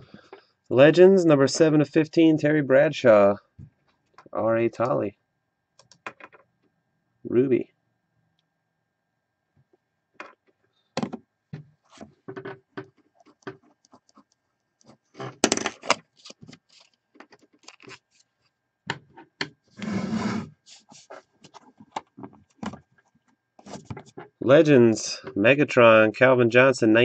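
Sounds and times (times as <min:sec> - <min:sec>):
scrape: 0:19.8 - 0:21.3.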